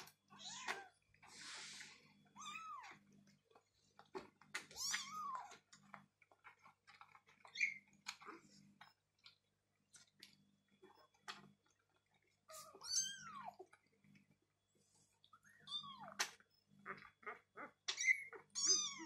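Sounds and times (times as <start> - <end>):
kittens lapping milk: 0.0 - 19.0.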